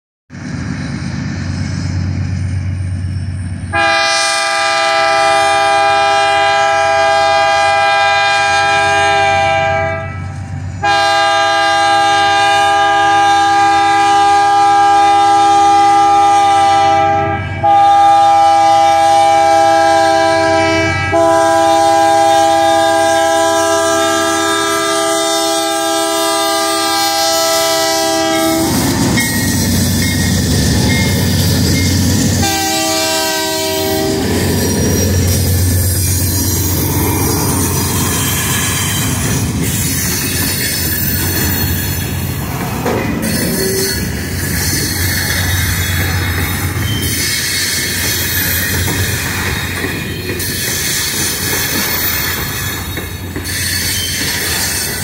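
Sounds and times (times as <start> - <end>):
rumble of passing train: 0.3 - 55.0
locomotive air horn blasts: 3.7 - 29.0, 32.2 - 34.8.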